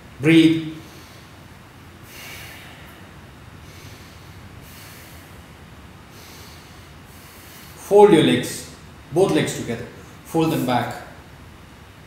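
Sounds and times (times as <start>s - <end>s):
man breathing deeply: 0.7s - 7.9s.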